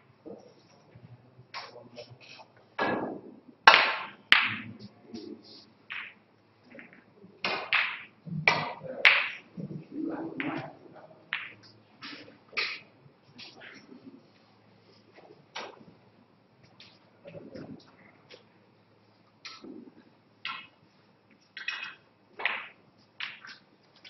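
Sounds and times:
cue striking ball: 2.8s - 4.8s, 6.8s - 9.5s, 11.3s - 11.7s, 21.6s - 23.5s
snooker balls clicking: 3.7s - 4.9s, 5.9s - 13.9s, 15.1s - 15.9s, 19.4s - 24.0s.

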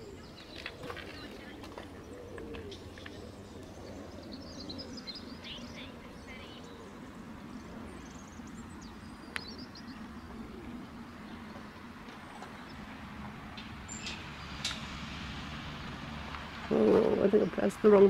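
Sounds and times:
small birds chirping: 0.0s - 15.0s, 16.3s - 18.0s
low outdoor rumble: 0.0s - 18.0s.

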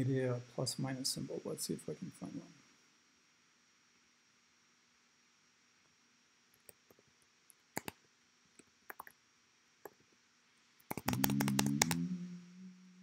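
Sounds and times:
mouse clicks: 7.8s - 8.0s, 8.9s - 9.1s, 10.9s - 12.0s
computer keyboard keystrokes: 8.9s - 9.1s, 10.9s - 12.0s.

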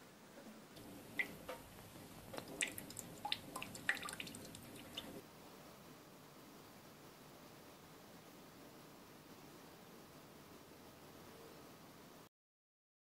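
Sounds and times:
small water splashes: 2.3s - 5.2s
water drops plinking into metal sink: 2.4s - 5.1s.

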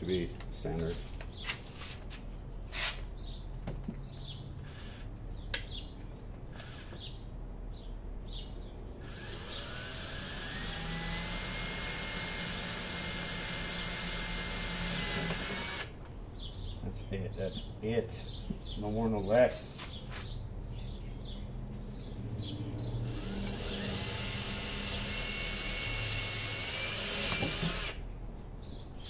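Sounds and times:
birds chirping: 0.0s - 1.8s, 2.9s - 29.0s
power drill boring: 9.0s - 15.9s, 23.0s - 28.0s.

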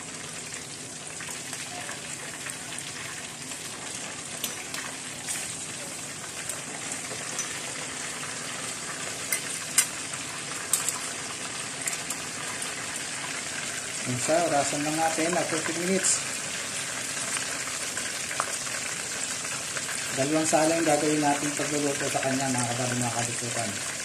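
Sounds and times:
meat deep-frying in hot oil: 0.0s - 24.0s.

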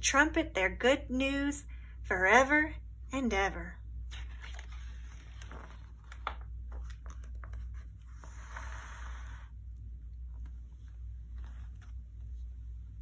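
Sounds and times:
steady low hum: 0.0s - 13.0s
book pages turning: 4.1s - 9.4s, 10.3s - 12.5s
paper swishing rustle: 4.1s - 9.4s.

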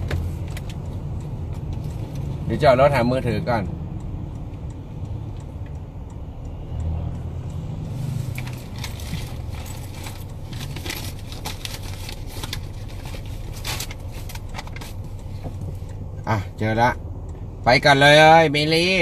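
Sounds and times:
car cabin hum: 0.0s - 6.5s, 7.8s - 19.0s
clicks and rustles of rummaging: 8.4s - 15.7s.

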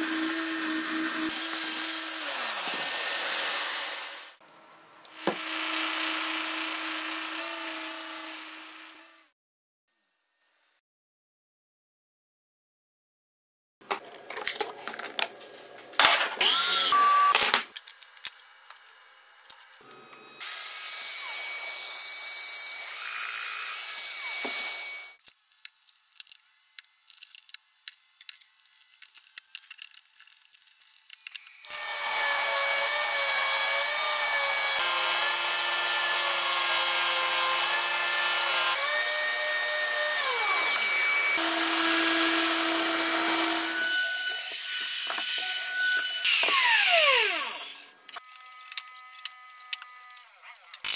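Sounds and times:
orbital sander on wood: 0.0s - 4.4s, 5.1s - 9.3s, 31.7s - 47.8s
power tool running: 0.0s - 4.4s, 5.1s - 9.3s, 16.4s - 17.5s, 19.4s - 25.2s, 31.2s - 50.9s.

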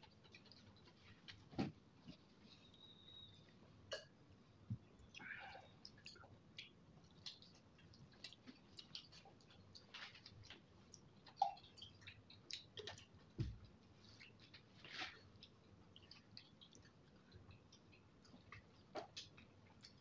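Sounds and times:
wet eating clicks and smacks: 0.0s - 1.4s, 5.8s - 20.0s.

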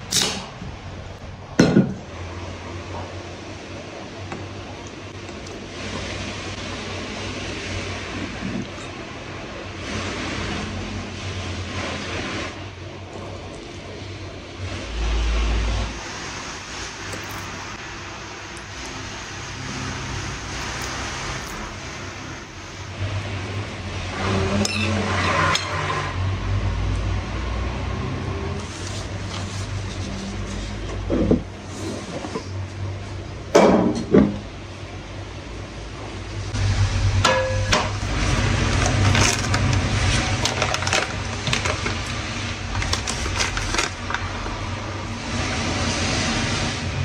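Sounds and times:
steady low hum: 34.5s - 40.3s.

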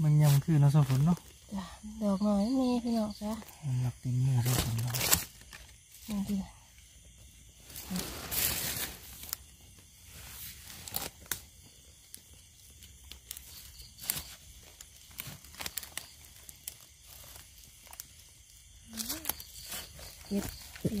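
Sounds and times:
dry leaves rustling and crackling: 13.0s - 21.0s.

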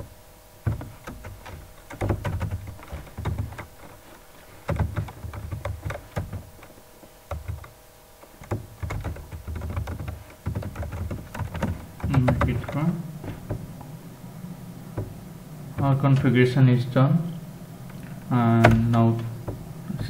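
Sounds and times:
faint steady hum: 0.0s - 20.0s
typing on computer keyboard: 0.7s - 6.7s, 7.3s - 13.0s.

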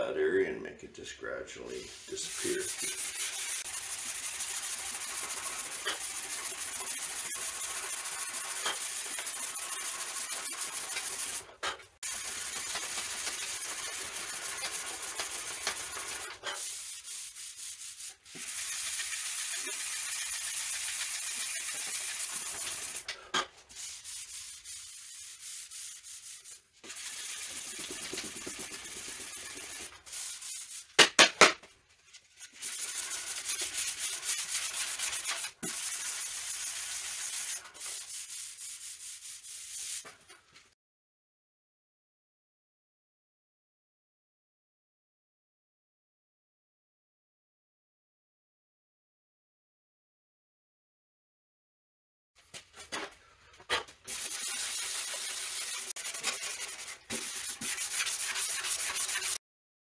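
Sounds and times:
hand sanding strokes: 1.8s - 23.1s, 23.7s - 31.0s, 32.3s - 40.1s, 54.1s - 59.4s.

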